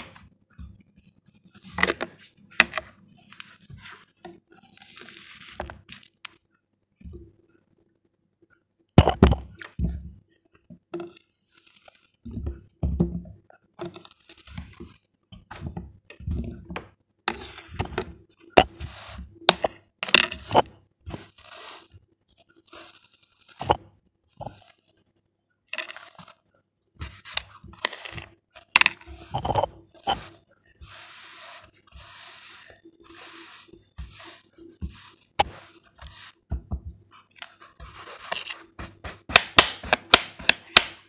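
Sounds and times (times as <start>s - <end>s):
sand crumbling and thudding: 13.9s - 22.0s, 27.0s - 41.0s
knife cutting through sand: 29.0s - 36.4s, 37.4s - 40.8s.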